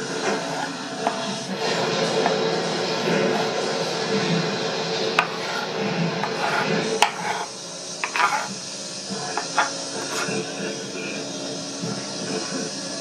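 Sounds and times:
knife scraping onion across board: 0.0s - 2.4s, 5.2s - 8.6s, 9.2s - 11.2s.

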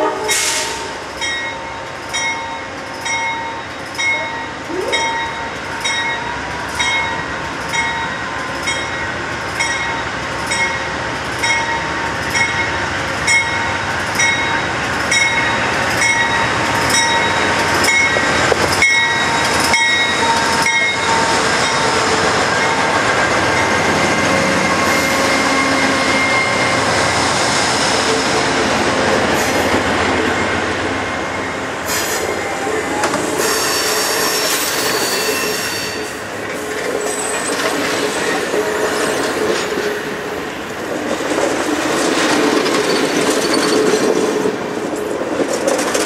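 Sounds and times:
locomotive bell ringing: 1.2s - 27.2s.

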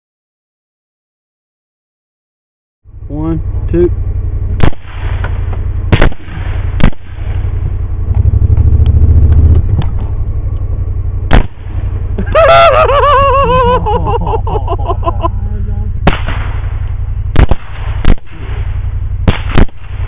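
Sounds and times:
low engine drone: 2.8s - 20.0s
rifle shots: 4.6s - 7.6s, 11.3s - 11.9s, 16.0s - 20.0s.

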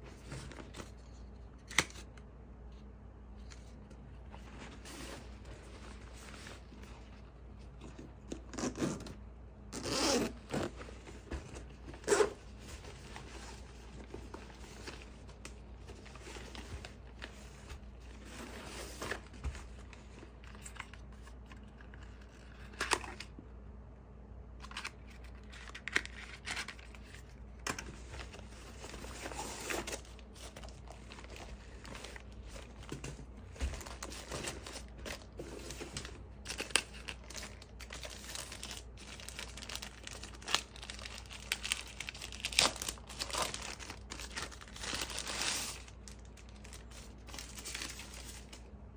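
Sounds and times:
fabric and packaging rustling: 3.5s - 9.0s, 9.8s - 23.2s, 24.8s - 48.8s
zipper opening: 9.7s - 10.7s.

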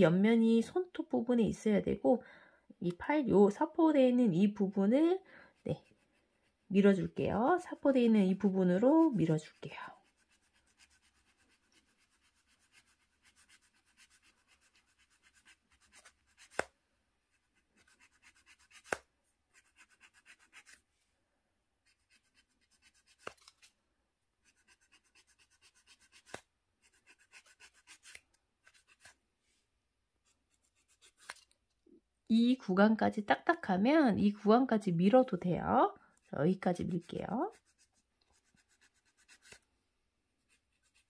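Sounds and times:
nail file rasping: 7.4s - 16.7s, 17.5s - 20.8s, 21.8s - 23.6s, 24.4s - 29.2s, 30.5s - 31.5s, 36.9s - 39.6s.

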